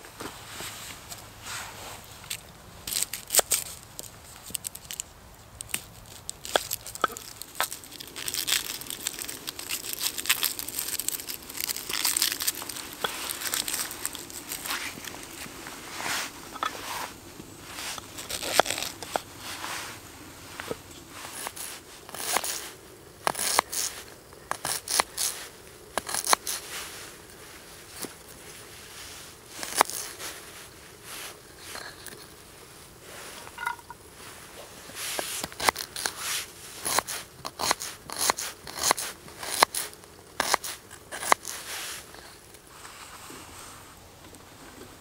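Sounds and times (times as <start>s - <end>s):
knife cutting onion: 21.2s - 25.4s, 26.0s - 26.7s, 36.8s - 41.7s.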